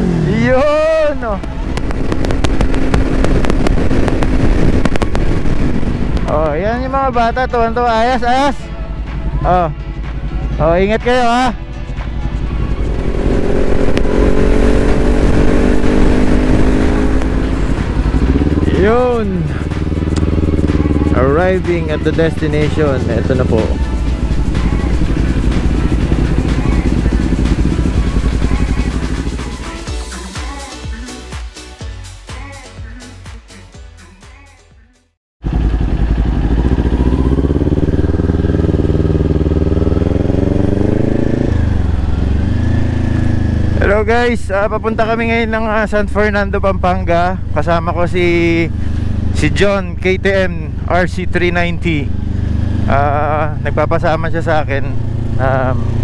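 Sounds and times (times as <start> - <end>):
motorcycle engine cruising: 0.0 - 31.2, 35.4 - 56.0
wind rush: 1.2 - 6.7, 12.8 - 18.7.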